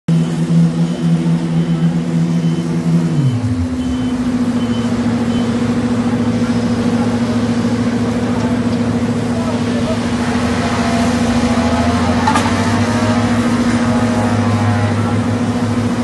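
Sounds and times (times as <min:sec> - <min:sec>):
faint high beep: 0:00.1 - 0:06.8
diesel engines running: 0:00.1 - 0:16.0.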